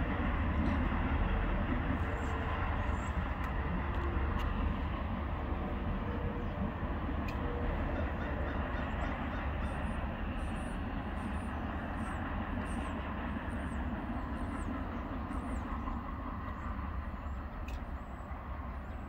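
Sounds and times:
freight train rumbling: 0:00.0 - 0:19.0.

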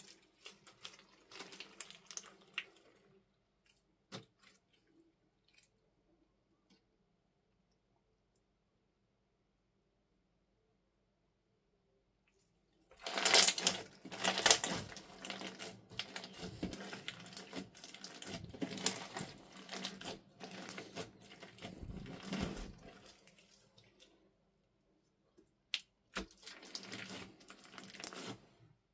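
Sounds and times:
slime crackling and squishing: 0:00.0 - 0:05.7, 0:12.9 - 0:24.2, 0:26.1 - 0:28.6.

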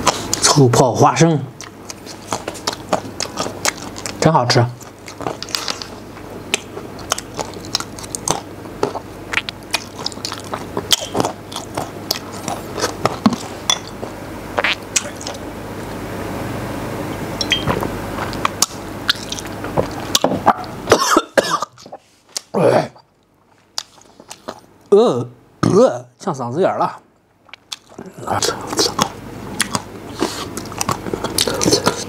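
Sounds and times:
chewing crunchy peanuts: 0:01.6 - 0:15.5, 0:17.6 - 0:20.8, 0:21.8 - 0:24.7, 0:27.4 - 0:32.0.

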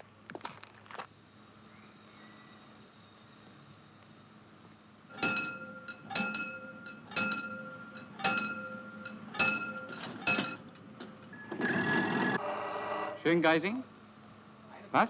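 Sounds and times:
level-crossing warning bell: 0:05.1 - 0:13.6.

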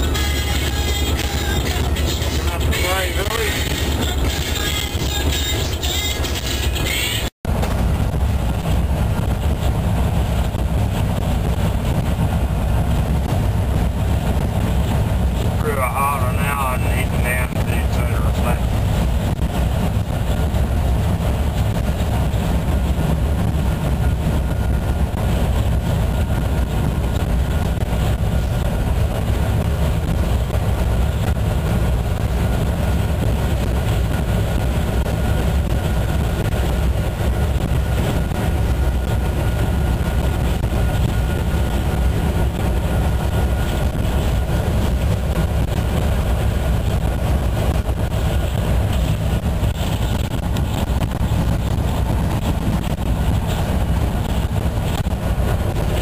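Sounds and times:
diesel engine rumble: 0:00.0 - 0:56.0
wheels running on rails: 0:00.0 - 0:56.0.

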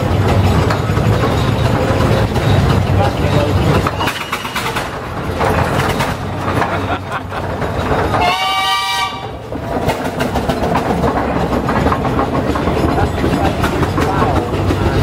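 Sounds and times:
steam engine chuffing: 0:00.0 - 0:15.0
steam whistle blast: 0:08.2 - 0:09.3.

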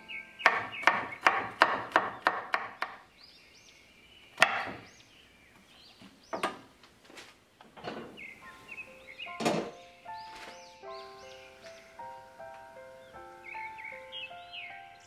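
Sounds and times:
knife chopping on wooden board: 0:00.4 - 0:03.0, 0:04.4 - 0:04.8.

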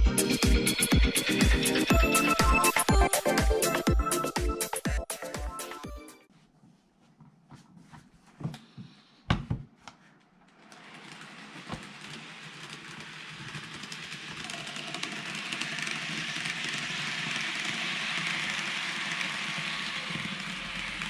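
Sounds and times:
model train running on track: 0:10.7 - 0:21.0.

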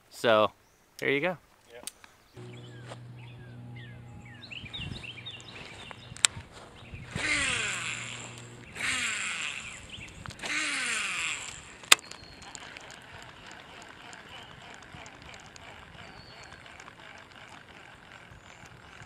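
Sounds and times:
fishing reel whirring: 0:02.4 - 0:19.0
sharp click: 0:05.4 - 0:06.5.

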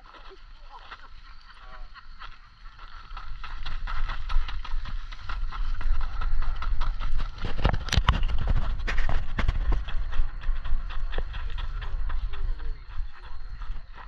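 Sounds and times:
running footsteps on gravel: 0:00.0 - 0:14.0
wind rumble on microphone: 0:00.0 - 0:14.0
microphone handling noise: 0:07.1 - 0:10.1.

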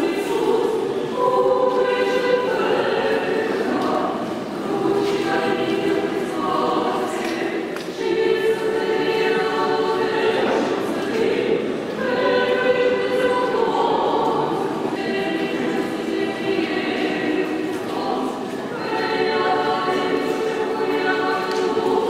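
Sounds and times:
choir singing a hymn a cappella: 0:00.0 - 0:22.0.

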